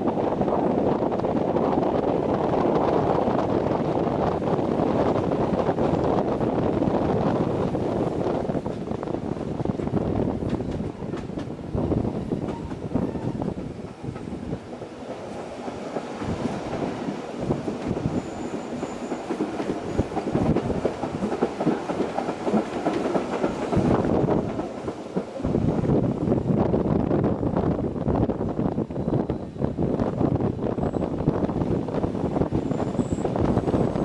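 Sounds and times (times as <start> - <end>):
train wheels rumbling on track: 0.0 - 34.0
train wheel clicks: 9.7 - 11.6, 12.4 - 25.6.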